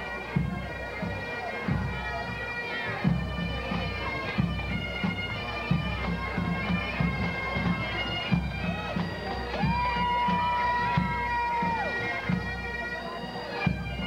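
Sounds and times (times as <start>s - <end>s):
bagpipes playing: 0.0s - 14.0s
marching drums: 3.0s - 12.8s.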